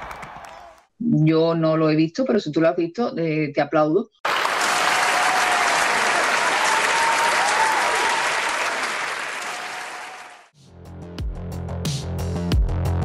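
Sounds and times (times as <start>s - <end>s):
audience applauding: 0.0s - 0.8s, 4.2s - 10.5s
electronic music with drum beat: 11.1s - 13.0s.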